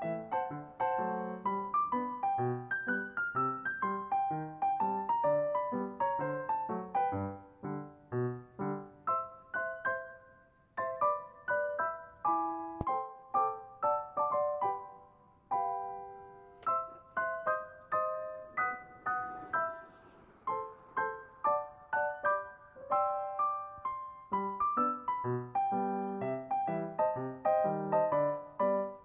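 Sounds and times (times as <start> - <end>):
solo piano music: 0.0 - 29.0.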